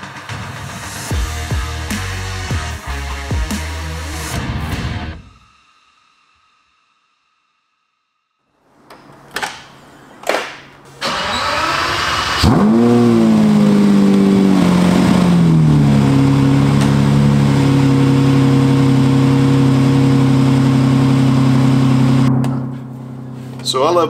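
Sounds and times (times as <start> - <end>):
car engine cranking: 11.0 - 15.4
car engine revving and idling: 11.1 - 23.7.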